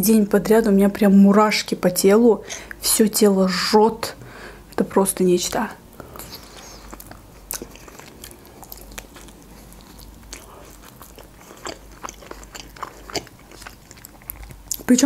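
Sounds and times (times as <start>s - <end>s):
biting and chewing: 6.0s - 14.9s
wet mouth sounds: 6.0s - 14.9s.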